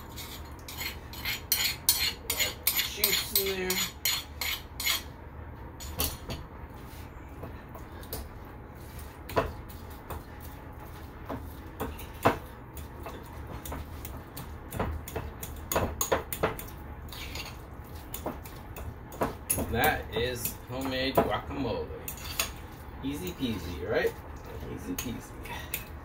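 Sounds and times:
fork scraping against a bowl: 0:00.0 - 0:05.1, 0:15.4 - 0:18.9, 0:22.0 - 0:26.0
low steady hum: 0:00.0 - 0:26.0.

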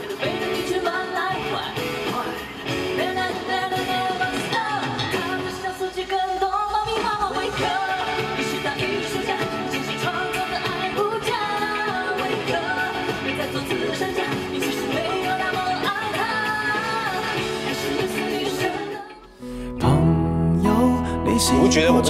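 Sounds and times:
pop backing music: 0:00.0 - 0:22.0
man singing: 0:19.4 - 0:22.0.

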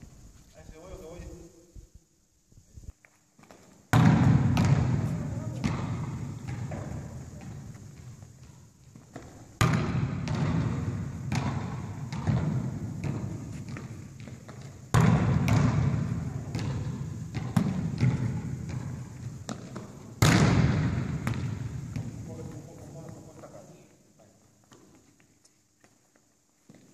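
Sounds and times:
footsteps in gymnasium: 0:02.8 - 0:26.9
volleyball smacks echoing: 0:03.9 - 0:07.7, 0:09.0 - 0:22.7.

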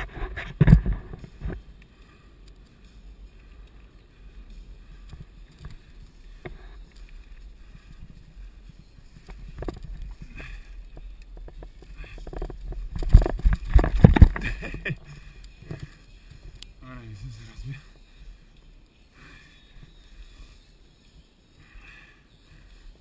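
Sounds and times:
bike clicks and rattles: 0:00.0 - 0:16.8.

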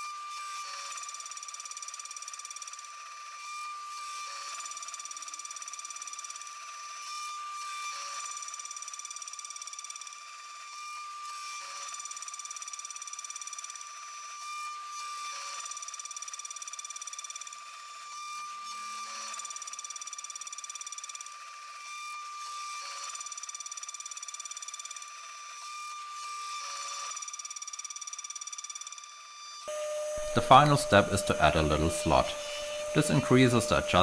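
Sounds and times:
mill spindle high-pitched whine: 0:00.0 - 0:34.0
end mill cutting metal: 0:29.7 - 0:34.0.

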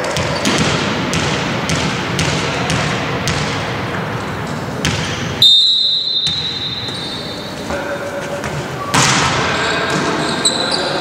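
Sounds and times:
volleyball bouncing on hardwood: 0:00.0 - 0:03.6, 0:04.8 - 0:05.3, 0:06.2 - 0:07.0
sports hall noise: 0:00.0 - 0:11.0.

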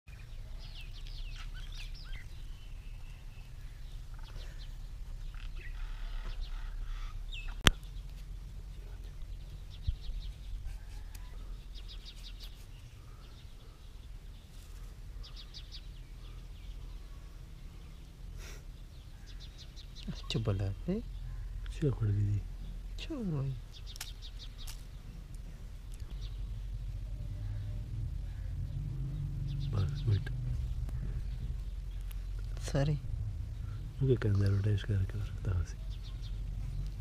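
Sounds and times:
small birds chirping: 0:00.1 - 0:37.0
low rumble: 0:21.1 - 0:37.0.

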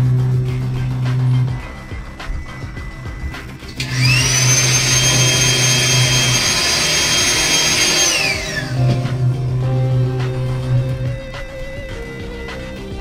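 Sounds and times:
electric blower motor whine: 0:03.0 - 0:13.0.

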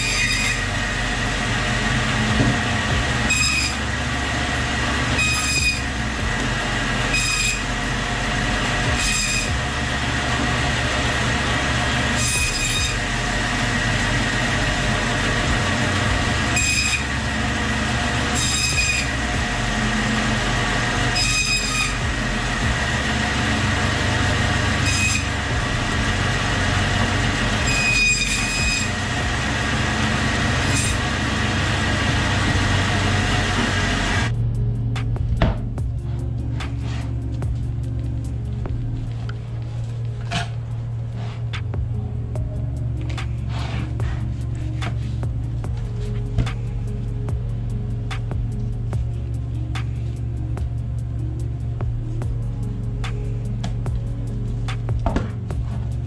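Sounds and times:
saw blade squealing through bone: 0:00.0 - 0:00.7, 0:03.3 - 0:03.8, 0:05.2 - 0:05.9, 0:07.1 - 0:07.7, 0:09.0 - 0:09.6, 0:12.2 - 0:13.1, 0:16.6 - 0:17.1, 0:18.3 - 0:19.1, 0:21.2 - 0:22.0, 0:24.8 - 0:25.3, 0:27.6 - 0:29.0
bandsaw humming: 0:00.0 - 0:56.0.

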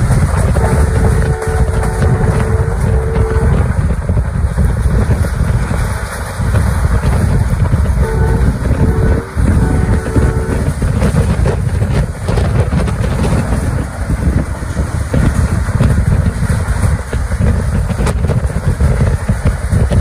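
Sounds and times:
train rumble: 0:00.0 - 0:20.0
wind on microphone: 0:00.0 - 0:20.0
train horn: 0:00.3 - 0:04.0, 0:08.0 - 0:11.6.

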